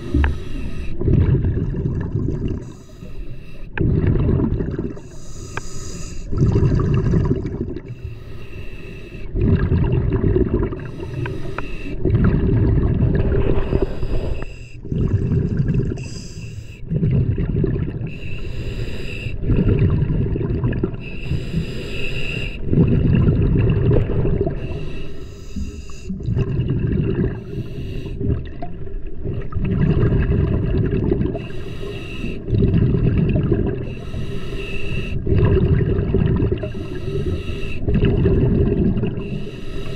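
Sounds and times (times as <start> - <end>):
regulator hiss on inhale: 0.0 - 1.0, 2.6 - 3.8, 5.0 - 6.3, 7.9 - 9.3, 10.8 - 12.0, 13.6 - 14.8, 16.0 - 16.8, 18.1 - 19.4, 21.1 - 22.7, 24.6 - 26.2, 31.4 - 32.5, 33.8 - 35.3, 36.6 - 37.9, 39.2 - 39.9
bubbling on exhale: 0.0 - 3.0, 3.7 - 8.2, 9.2 - 25.0, 25.6 - 39.9.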